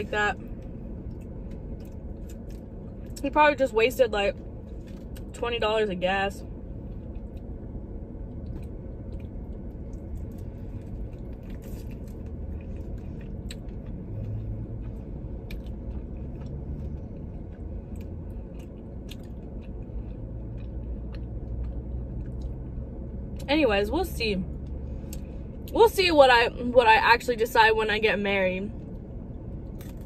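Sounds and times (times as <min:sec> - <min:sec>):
low steady hum: 0:00.0 - 0:30.0
person chewing chicken wing: 0:08.4 - 0:22.7.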